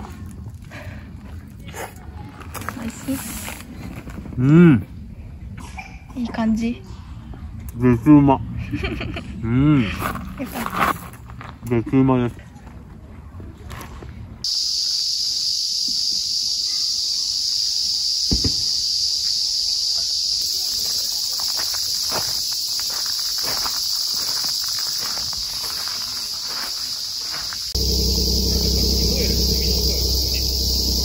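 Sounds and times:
high-pitched insect chorus: 14.4 - 31.0.

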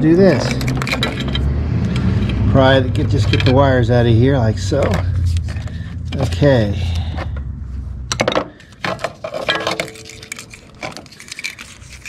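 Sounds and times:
metal connectors clicking and clinking: 0.2 - 2.4, 8.1 - 12.0.

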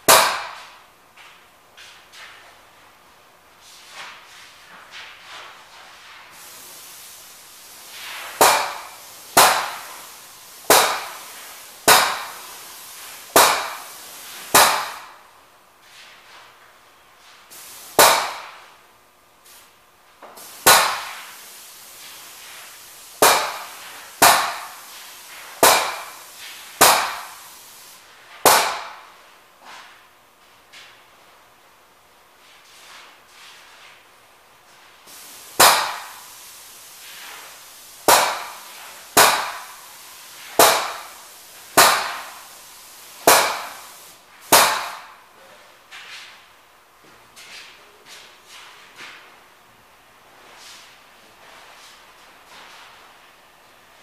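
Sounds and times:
spray gun hissing bursts: 5.0 - 15.3, 17.2 - 18.8, 19.4 - 29.1, 35.0 - 45.3.

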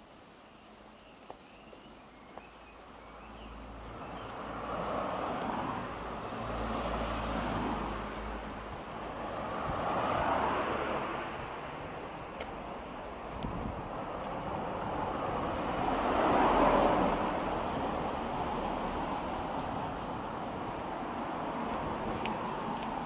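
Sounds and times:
vehicle engine and tyre noise: 0.0 - 23.0.

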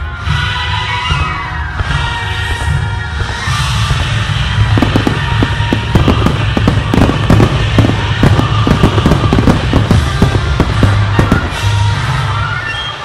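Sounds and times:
firework shells bursting: 3.3 - 12.0.

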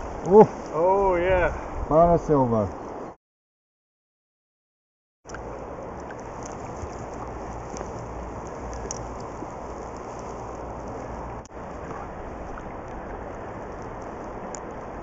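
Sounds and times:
faint ticks and clicks: 5.3 - 14.9
underwater river rushing: 5.3 - 15.0.

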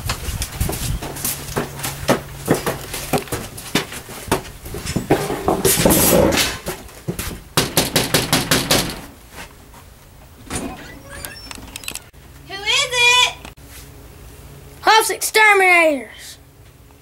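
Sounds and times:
loud scuffing: 0.0 - 7.5, 9.2 - 10.0
footsteps on wooden deck: 0.0 - 7.8
fist knocking on glass door: 7.6 - 9.1.

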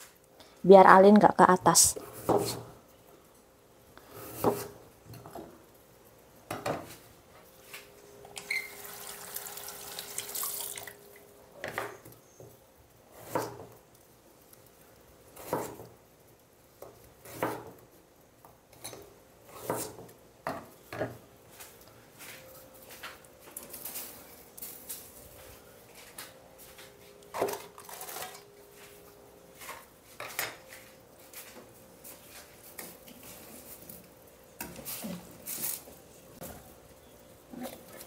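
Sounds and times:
tap water running: 8.4 - 11.3
knife chopping on wooden board: 15.4 - 15.8, 17.2 - 17.7, 19.5 - 20.0.

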